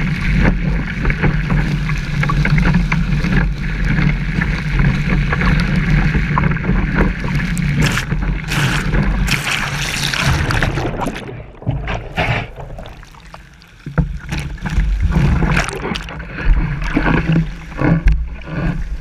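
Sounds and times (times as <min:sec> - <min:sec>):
rushing water: 0:00.0 - 0:19.0
spray splashing camera: 0:07.8 - 0:10.4.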